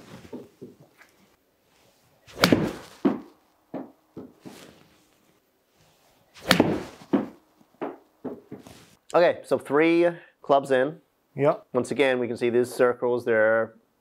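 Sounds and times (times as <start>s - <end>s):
golf club striking ball: 2.3s - 3.3s, 6.4s - 8.0s
ball hitting impact screen: 2.3s - 4.3s, 6.4s - 8.6s.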